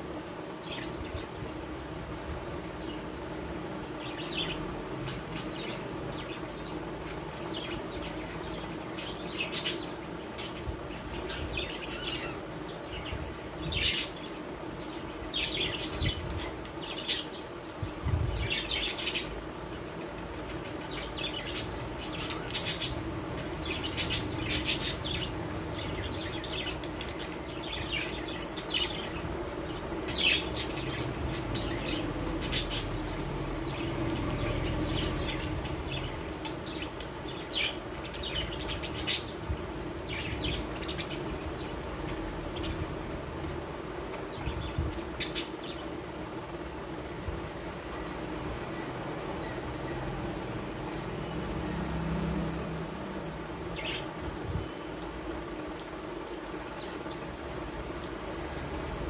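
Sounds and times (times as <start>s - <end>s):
steady low hum: 0.0s - 59.0s
parrots chirping and squawking: 2.8s - 46.5s, 53.7s - 54.1s.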